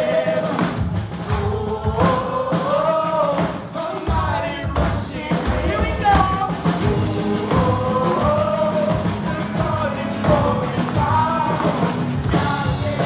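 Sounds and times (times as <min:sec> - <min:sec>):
drum kit: 0:00.0 - 0:13.0
man singing lead: 0:00.0 - 0:13.0
women singing along: 0:00.0 - 0:13.0
strummed acoustic guitar: 0:03.4 - 0:13.0.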